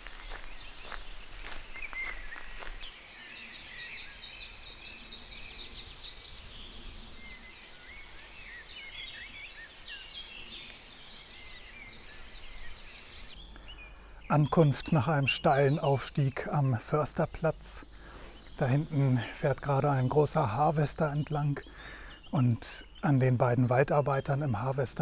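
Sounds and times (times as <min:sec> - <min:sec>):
footsteps on forest path: 0:00.0 - 0:03.0, 0:16.4 - 0:22.2
songbirds chirping and trilling: 0:00.0 - 0:25.0.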